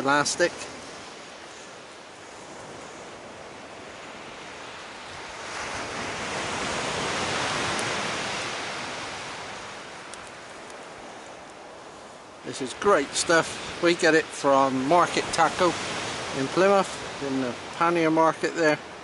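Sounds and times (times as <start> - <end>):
waves on shingle beach: 0.0 - 19.0.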